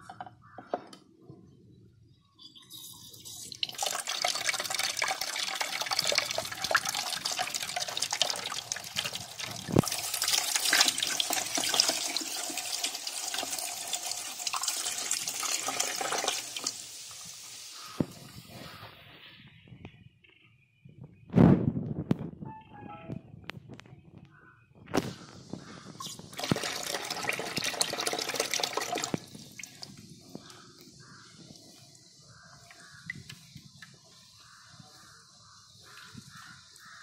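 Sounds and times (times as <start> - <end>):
water pouring into steel bowl: 2.9 - 17.3, 26.4 - 29.9.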